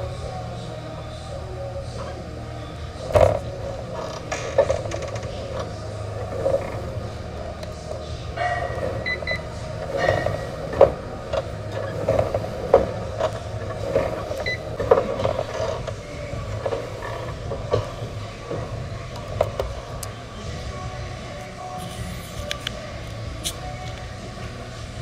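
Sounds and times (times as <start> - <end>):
steady low hum: 0.0 - 25.0
elliptical trainer creaking and knocking: 1.6 - 21.5.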